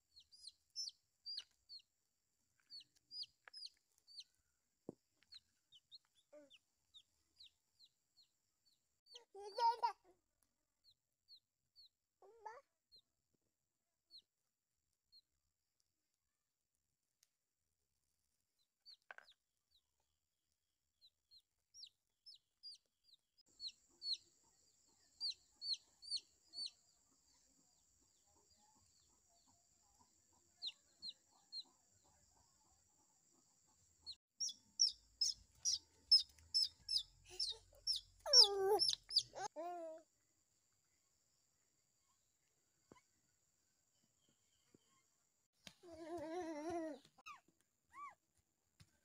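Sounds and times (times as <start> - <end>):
chick peeping: 0.1 - 1.8, 2.6 - 4.3, 23.6 - 39.5.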